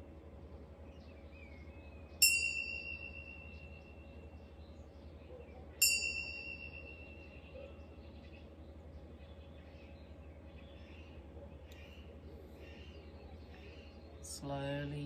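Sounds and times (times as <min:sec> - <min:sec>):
tingsha cymbals ringing: 0:02.2 - 0:04.4, 0:05.8 - 0:07.6.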